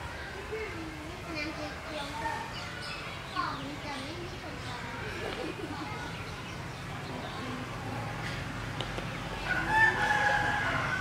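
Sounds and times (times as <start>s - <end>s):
rooster crowing: 9.4s - 11.0s.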